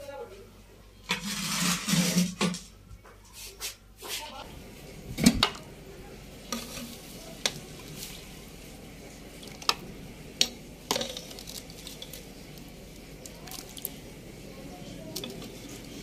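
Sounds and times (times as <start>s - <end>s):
wet spooning sounds: 10.4s - 14.0s, 14.8s - 16.0s.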